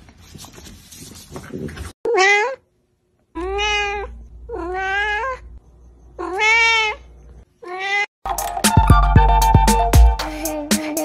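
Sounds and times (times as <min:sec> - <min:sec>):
cat meowing: 0:02.1 - 0:02.6, 0:03.4 - 0:05.6, 0:06.2 - 0:08.1.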